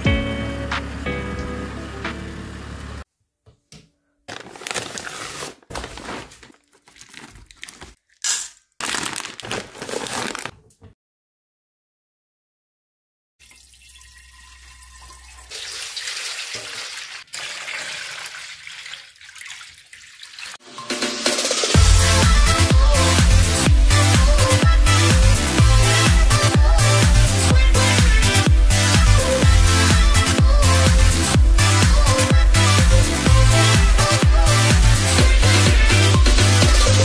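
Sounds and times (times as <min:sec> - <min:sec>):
handling noises: 0:04.3 - 0:10.7
water pouring into steel bowl: 0:13.4 - 0:20.6.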